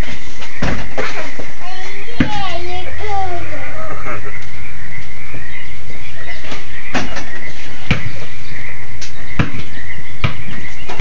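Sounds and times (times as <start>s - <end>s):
high-pitched background noise: 0.0s - 11.0s
basketball bouncing on hard ground: 0.4s - 1.4s, 2.1s - 2.5s, 6.9s - 8.2s, 9.0s - 11.0s.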